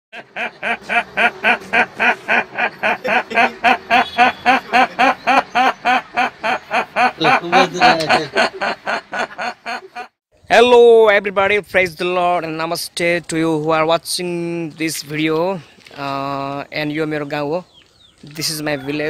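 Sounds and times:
man imitating duck quacks: 0.7 - 8.5.

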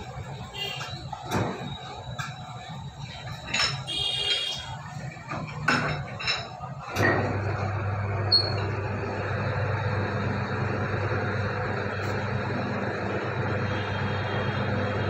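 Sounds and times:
metallic clinks and knocks: 5.3 - 6.7.

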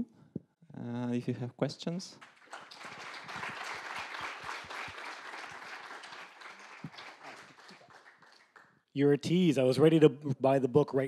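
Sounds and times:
audience applauding: 2.2 - 8.8.

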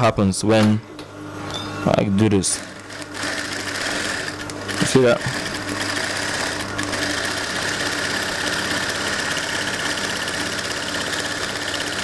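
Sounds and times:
sewing machine stitching: 2.5 - 12.0.

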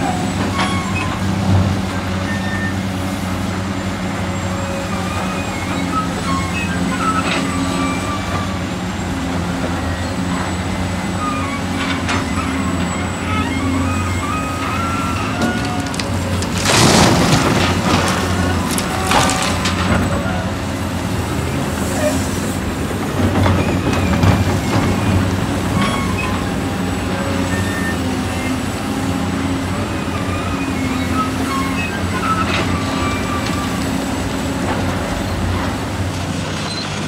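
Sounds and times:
diesel engine running: 0.0 - 37.0
short squeaks and clicks: 0.1 - 1.3, 4.9 - 8.7, 11.2 - 20.4, 23.4 - 26.6, 30.0 - 34.2, 36.6 - 37.0.

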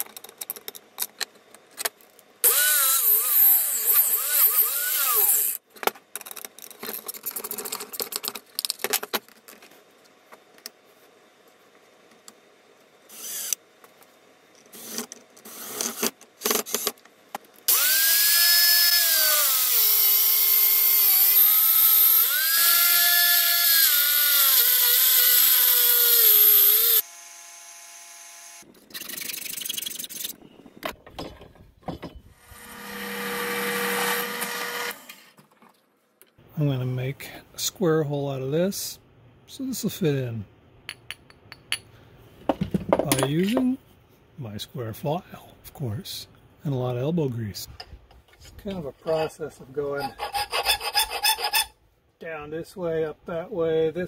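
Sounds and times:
angle grinder grinding steel: 2.4 - 5.6, 17.7 - 27.0, 49.0 - 51.8.

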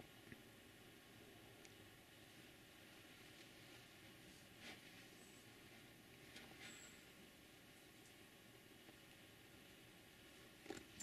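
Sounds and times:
faint outdoor hiss: 0.0 - 11.0
soft rustles: 3.2 - 7.0.

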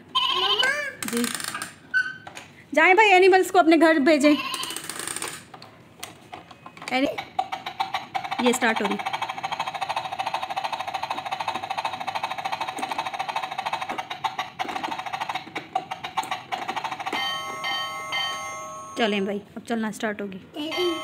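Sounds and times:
toy rapid clicking: 4.4 - 5.6, 6.6 - 17.5.

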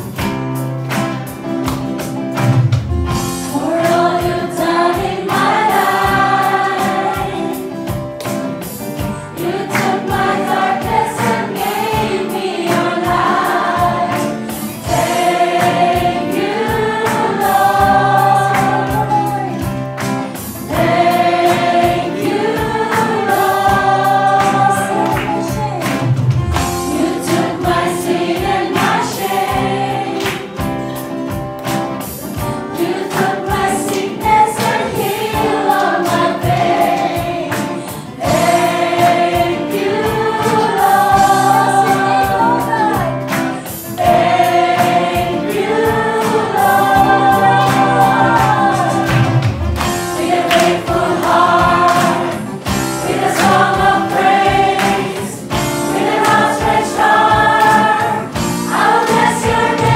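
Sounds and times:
amplified instrumental accompaniment: 0.0 - 59.9
women singing into microphones: 3.5 - 7.6, 9.4 - 19.6, 20.7 - 25.9, 32.8 - 43.2, 43.9 - 49.4, 50.2 - 59.9.

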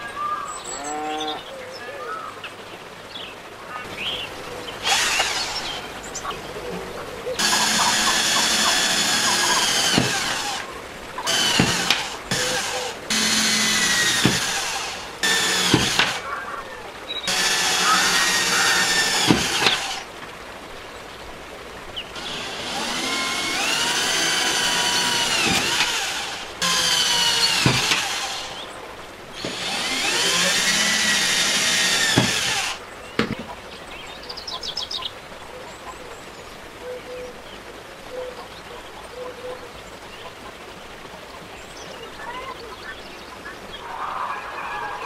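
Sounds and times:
cordless drill whining: 4.8 - 6.0, 7.4 - 16.2, 17.3 - 20.1, 22.2 - 28.6, 29.4 - 32.8.

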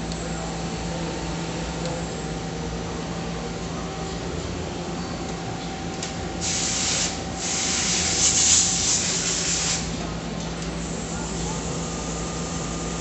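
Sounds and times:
hissing spray: 6.4 - 9.9.

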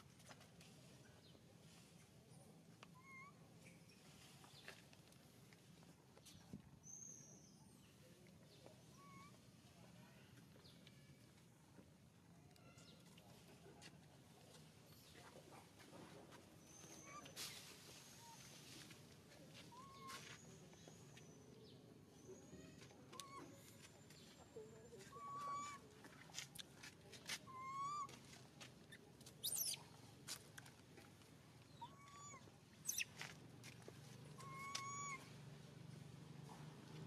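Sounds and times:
high-pitched animal calls: 25.0 - 25.8, 27.5 - 28.1, 31.8 - 33.1, 34.4 - 35.3.

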